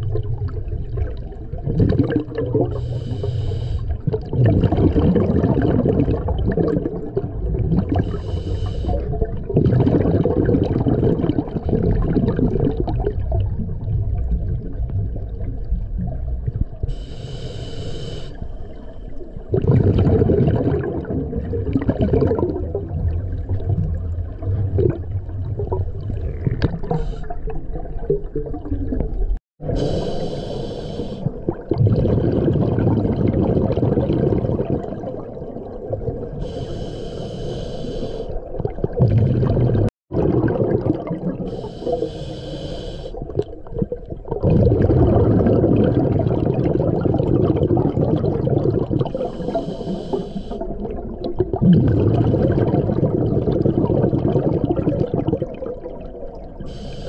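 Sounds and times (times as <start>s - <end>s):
rush of exhaled bubbles: 0.0s - 17.0s, 18.6s - 36.9s, 38.3s - 57.0s
regulator hissing inhale: 2.8s - 4.0s, 8.0s - 9.1s, 16.9s - 18.9s, 29.7s - 31.4s, 36.4s - 38.4s, 41.5s - 43.2s, 49.2s - 50.7s, 56.6s - 57.0s.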